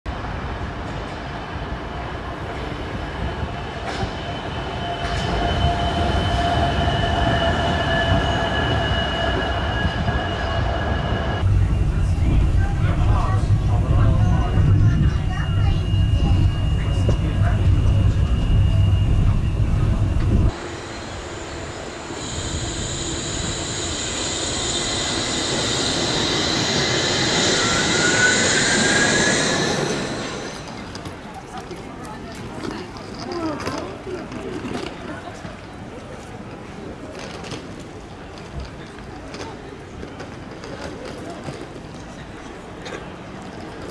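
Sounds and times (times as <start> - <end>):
monorail train rumbling: 0.1 - 43.9
steel wheels squealing: 3.1 - 12.0, 14.5 - 30.9.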